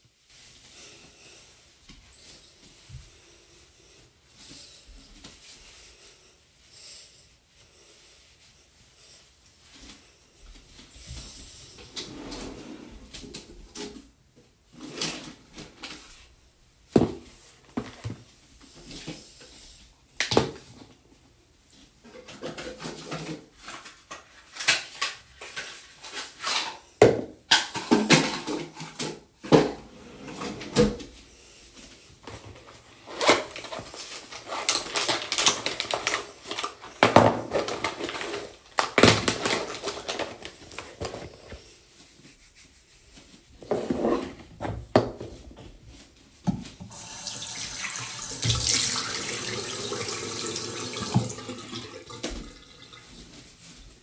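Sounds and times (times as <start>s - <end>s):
toiletries clattering on counter: 26.5s - 31.0s, 46.9s - 53.2s
sink tap running: 46.9s - 53.0s.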